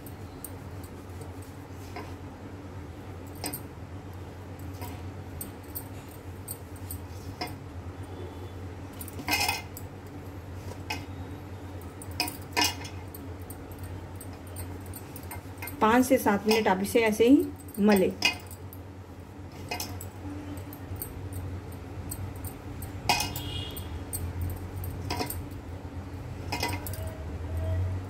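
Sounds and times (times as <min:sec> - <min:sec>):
low steady hum: 0:00.0 - 0:28.0
glass bangles clinking: 0:03.2 - 0:03.7, 0:08.8 - 0:18.8, 0:19.5 - 0:28.0
clinks against steel plate: 0:22.4 - 0:25.4, 0:26.5 - 0:27.2.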